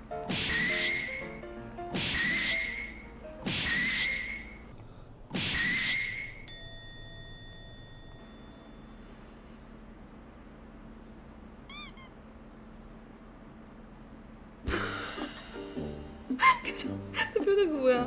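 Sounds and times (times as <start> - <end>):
faint steady hum: 6.2 - 18.0
woman laughing: 16.3 - 18.0.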